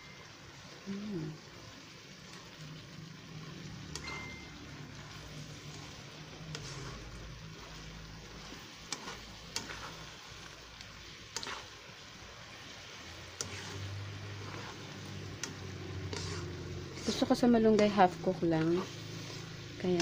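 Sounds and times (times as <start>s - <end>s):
food simmering and sizzling in wok: 0.0s - 20.0s
spatula scraping and tapping pan: 3.9s - 11.8s, 13.3s - 20.0s.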